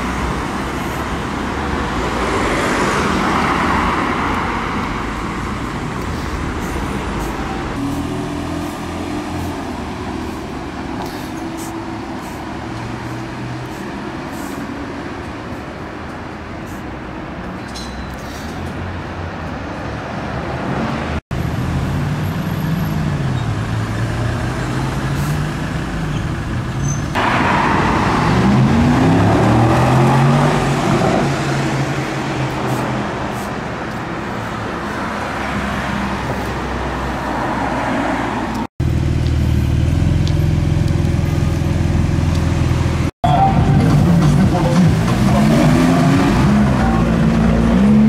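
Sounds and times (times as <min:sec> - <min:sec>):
sports car engines accelerating: 0:27.2 - 0:32.3, 0:43.7 - 0:48.0.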